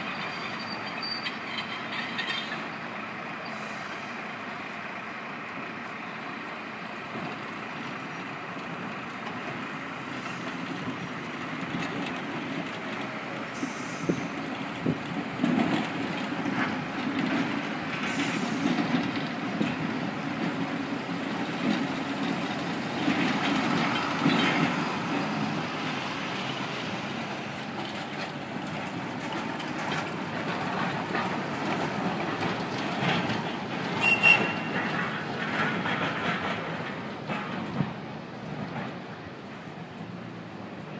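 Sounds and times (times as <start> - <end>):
high squeal: 0.0 - 2.6
city street noise: 0.0 - 40.9
tram rumbling on tracks: 0.0 - 40.9.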